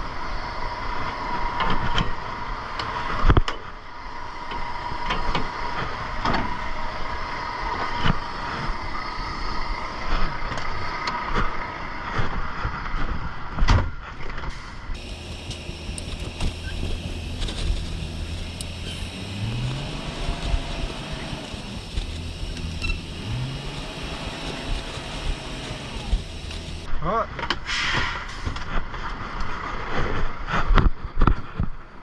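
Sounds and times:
truck engine running: 14.5s - 26.9s.

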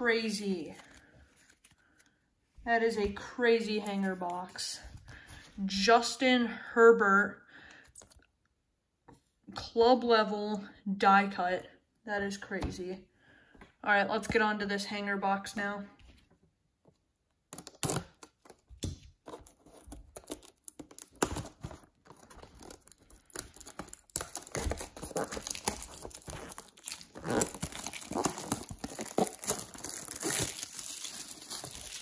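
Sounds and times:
plastic wrap crackling: 17.5s - 32.0s.

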